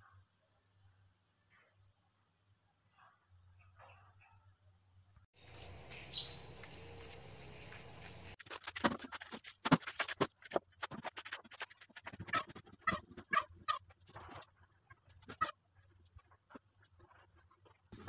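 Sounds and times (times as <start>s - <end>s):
plastic bag crinkling: 8.4s - 10.5s.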